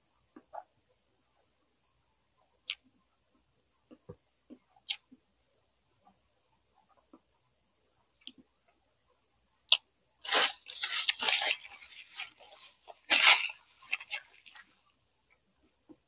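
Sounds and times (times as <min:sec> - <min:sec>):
crunching and chewing food: 0:03.9 - 0:05.2, 0:09.7 - 0:16.0
mouth clicks: 0:04.8 - 0:05.2.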